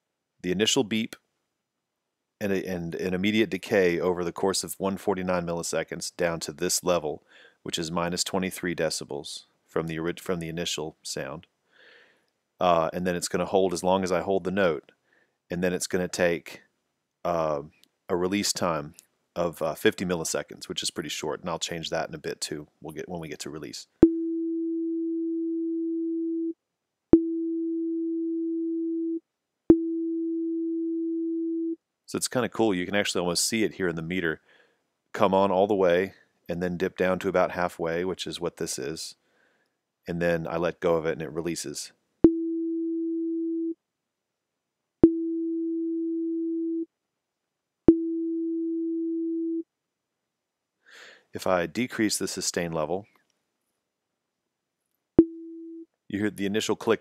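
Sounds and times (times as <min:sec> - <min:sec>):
synthesizer sine tone: 0:27.2 - 0:31.8, 0:45.0 - 0:46.9.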